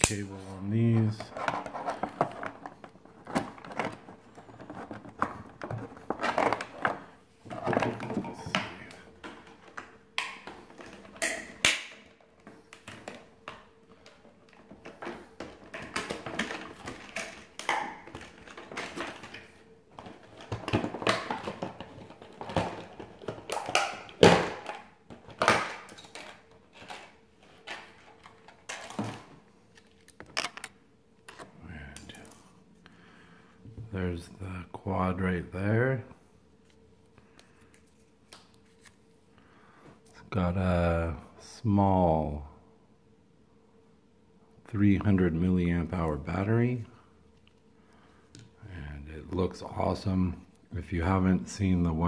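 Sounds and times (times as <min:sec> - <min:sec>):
faint steady hum: 0:00.0 - 0:52.0
stiff plastic clicking and crinkling: 0:01.0 - 0:32.4.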